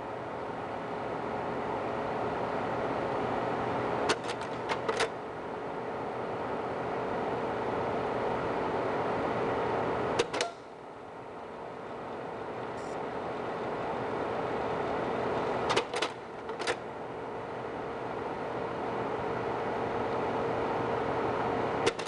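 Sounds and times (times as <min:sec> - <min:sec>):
projector cooling fan hum: 0:00.0 - 0:22.0.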